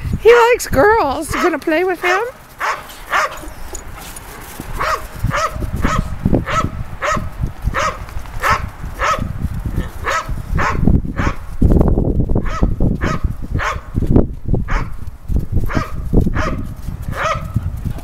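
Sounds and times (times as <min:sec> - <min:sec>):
dog barking: 0:01.3 - 0:03.7, 0:04.3 - 0:09.3, 0:10.0 - 0:11.4, 0:12.4 - 0:13.9, 0:14.7 - 0:14.9, 0:15.7 - 0:17.6.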